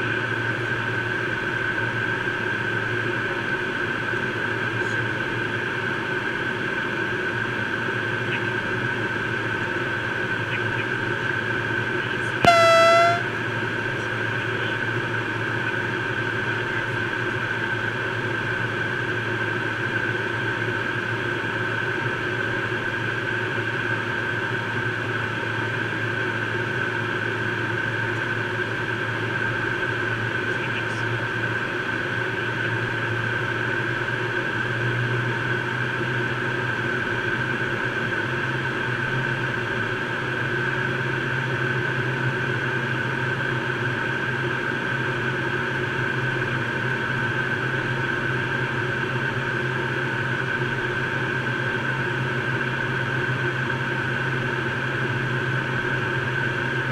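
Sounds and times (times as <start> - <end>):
electronic alert tone: 12.5 - 13.2
jet cabin engine whine and airflow: 12.5 - 13.2.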